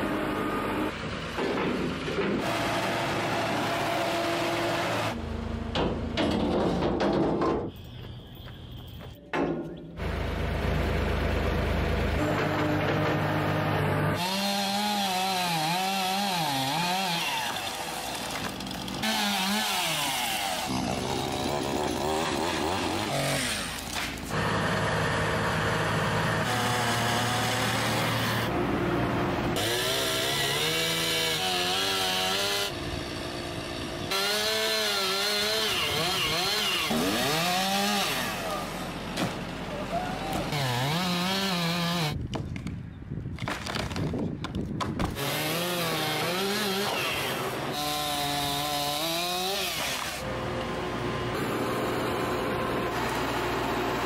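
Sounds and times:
chainsaw cutting wood: 14.1 - 28.5, 29.5 - 39.5, 40.3 - 42.2, 45.0 - 50.3, 51.3 - 54.0.

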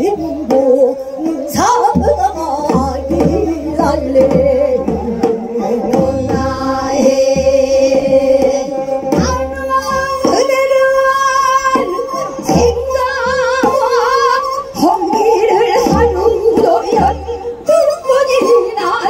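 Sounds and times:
low drum beats: 0.0 - 11.9
women singing folk song: 0.0 - 19.0.

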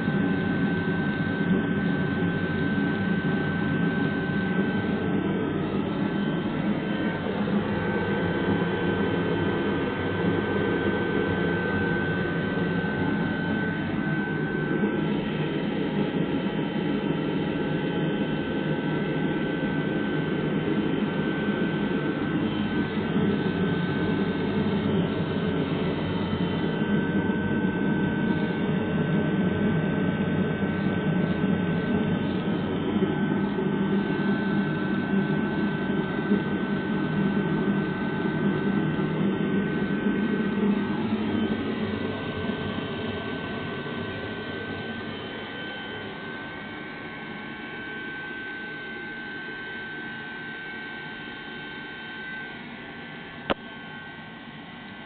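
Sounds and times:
heater burner and fan rushing: 0.0 - 55.0
thin high whine: 0.0 - 55.0.

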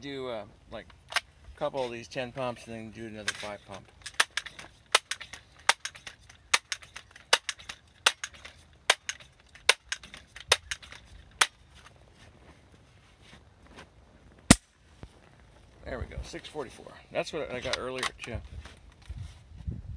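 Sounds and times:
pellet rifle pump clicks: 3.2 - 11.6.

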